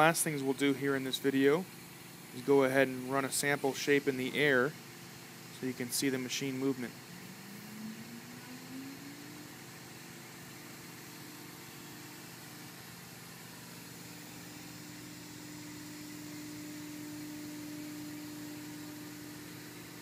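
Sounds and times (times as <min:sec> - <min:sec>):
cnc router machine whine: 0:03.0 - 0:20.0.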